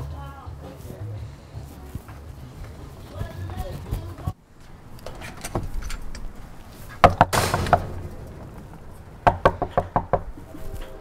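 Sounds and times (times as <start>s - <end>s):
fist knocking on door: 9.2s - 10.3s.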